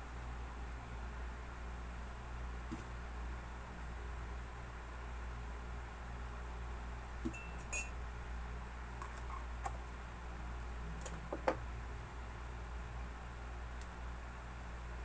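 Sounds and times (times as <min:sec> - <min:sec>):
steady low hum: 0:00.0 - 0:15.0
utensil clinking against container: 0:07.3 - 0:07.9.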